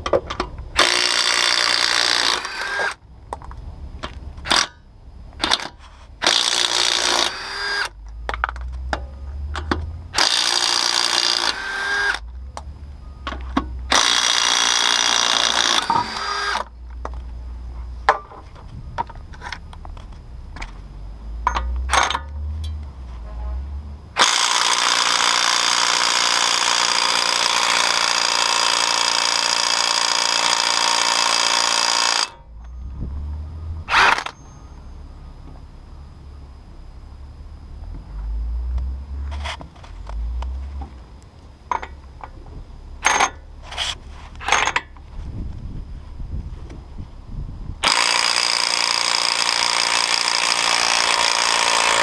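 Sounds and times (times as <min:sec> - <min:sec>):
impact wrench running: 0:00.8 - 0:03.0, 0:04.4 - 0:04.8, 0:05.4 - 0:08.0, 0:09.6 - 0:12.2, 0:13.9 - 0:16.7, 0:24.2 - 0:32.4, 0:47.8 - 0:52.0.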